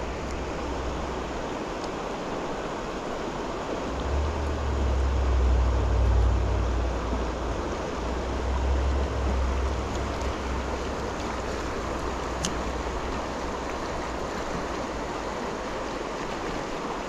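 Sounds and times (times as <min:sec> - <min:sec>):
river water rushing: 0:00.0 - 0:17.0
low rumble on microphone: 0:03.5 - 0:15.8.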